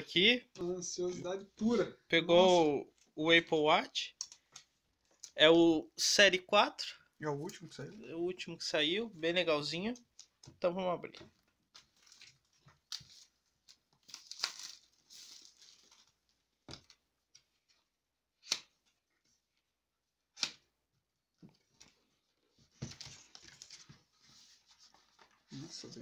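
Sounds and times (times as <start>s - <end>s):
packaging tearing and rustling: 12.0s - 16.2s.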